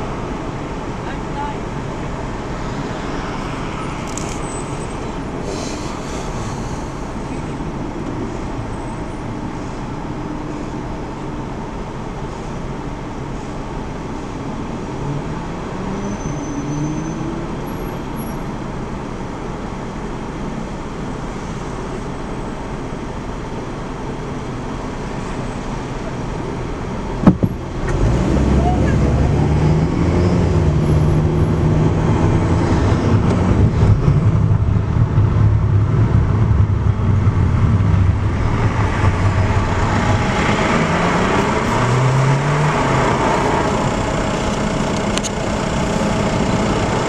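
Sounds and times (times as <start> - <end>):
road traffic noise: 0.0 - 47.0
vehicle accelerating: 25.8 - 47.0
sharp knock: 27.2 - 27.6.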